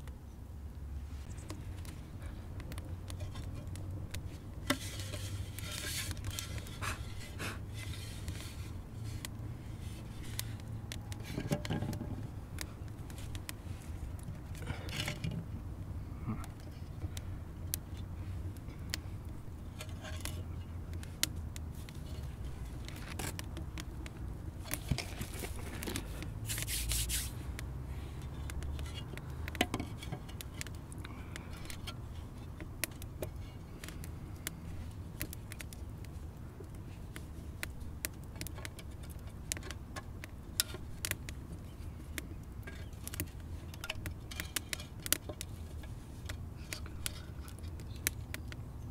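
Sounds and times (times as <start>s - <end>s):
wood fire crackling: 0.0s - 48.9s
scraping and knocking on stone: 9.8s - 12.3s, 28.6s - 30.7s.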